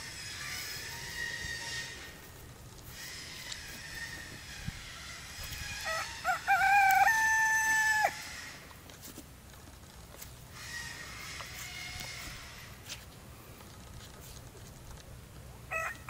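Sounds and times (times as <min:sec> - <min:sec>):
rooster crowing: 0:05.7 - 0:08.5, 0:15.7 - 0:16.0.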